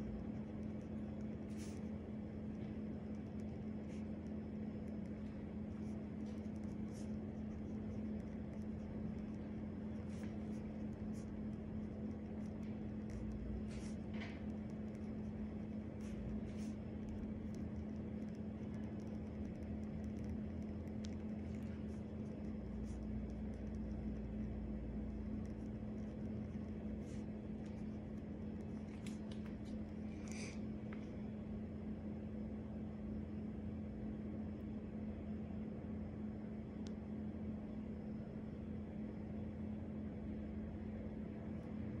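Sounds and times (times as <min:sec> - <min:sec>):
steady low hum: 0:00.0 - 0:42.0
pen writing on paper: 0:00.2 - 0:01.9, 0:03.2 - 0:20.3, 0:21.0 - 0:24.2, 0:25.4 - 0:28.0.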